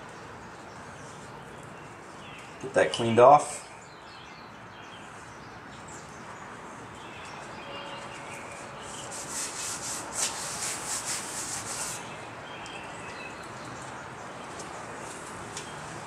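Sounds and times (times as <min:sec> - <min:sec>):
cloth rubbing in scratchy strokes: 0:08.3 - 0:12.1
steady hiss: 0:08.5 - 0:12.2.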